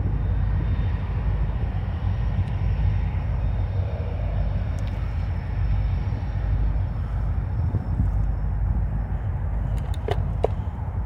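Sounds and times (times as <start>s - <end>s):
distant diesel locomotive rumble: 0.0s - 11.0s.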